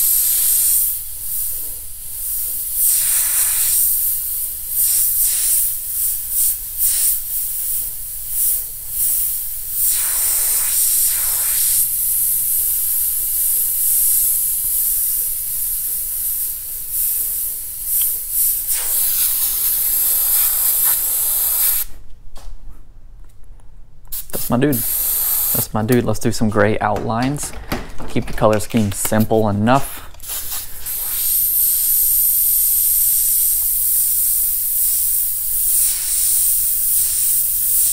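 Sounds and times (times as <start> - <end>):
airbrush spraying hiss: 0.0 - 22.0, 24.1 - 26.3, 28.7 - 37.9.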